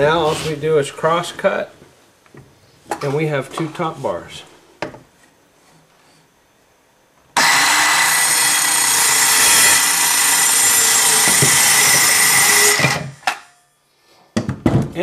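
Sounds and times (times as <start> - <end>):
circular saw cutting wood: 7.4 - 13.4.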